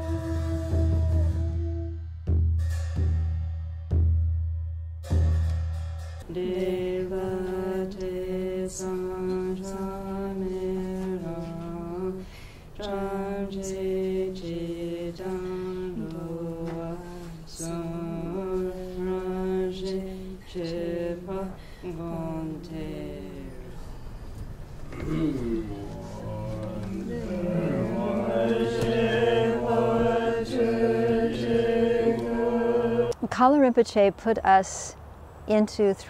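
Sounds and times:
voices chanting slowly: 0:06.2 - 0:33.2.

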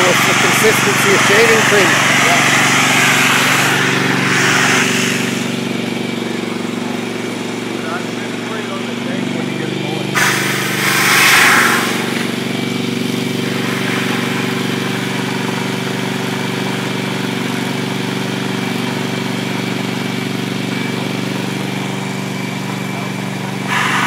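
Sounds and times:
hiss of foam discharging: 0:00.0 - 0:05.6, 0:10.2 - 0:12.5, 0:13.4 - 0:15.5, 0:23.6 - 0:24.0
engine running steadily: 0:00.0 - 0:24.0.

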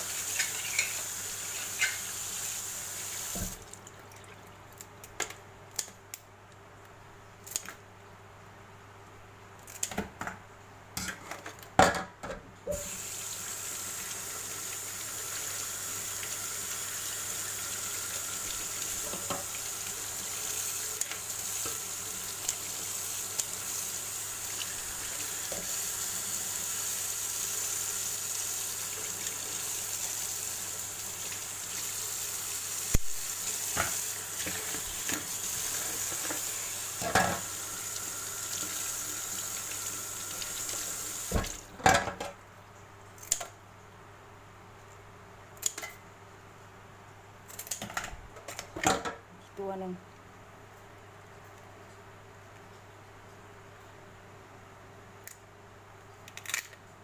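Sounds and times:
tap water running into sink: 0:00.0 - 0:04.5, 0:12.8 - 0:41.6.

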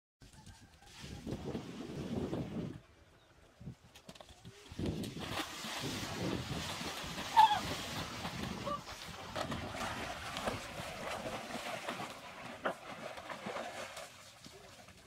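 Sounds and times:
water splashing in pool: 0:04.7 - 0:15.0.

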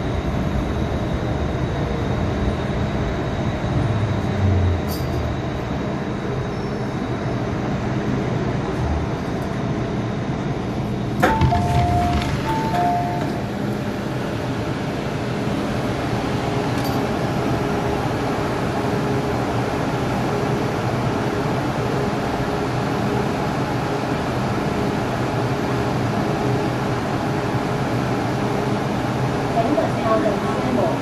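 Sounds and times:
train air conditioning hum: 0:00.0 - 0:31.0.

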